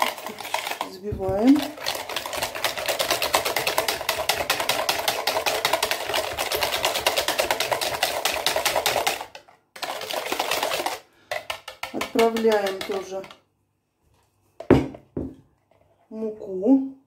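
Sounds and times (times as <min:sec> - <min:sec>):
whisk clattering in plastic jug: 0:00.0 - 0:13.4.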